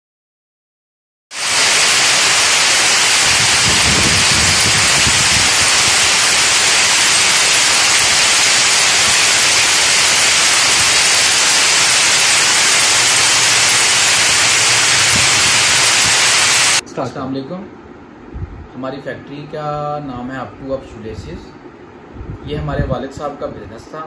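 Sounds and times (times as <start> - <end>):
braiding machines running: 1.4 - 16.8.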